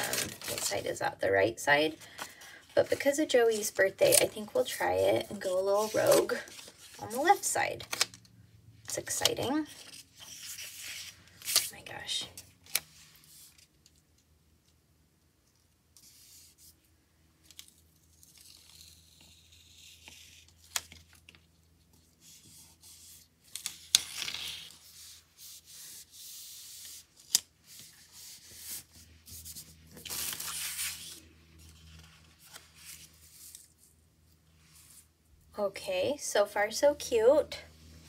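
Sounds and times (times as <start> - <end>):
paper rustling: 0.0 - 1.0, 2.0 - 8.2, 17.5 - 34.0.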